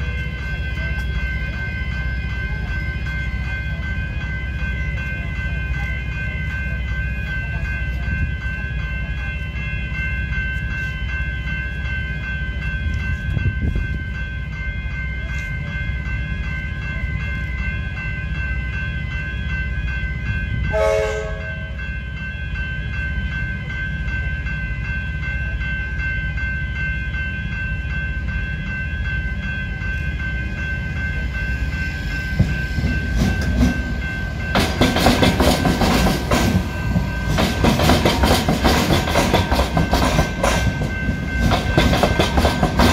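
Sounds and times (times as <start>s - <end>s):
level crossing bells ringing: 0.0s - 42.9s
train horn blast: 20.7s - 21.8s
train wheels clattering over rails: 32.3s - 42.9s.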